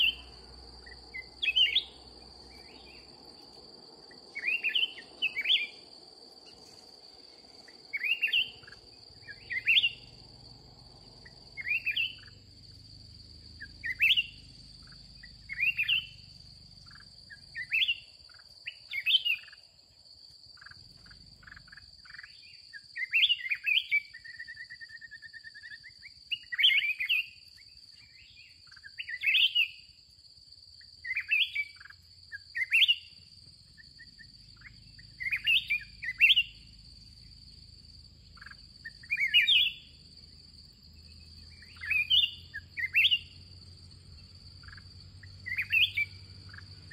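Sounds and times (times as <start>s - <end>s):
bulbuls singing: 0.0s - 19.6s, 31.0s - 46.9s
high-pitched insect drone: 0.0s - 19.7s, 30.8s - 46.9s.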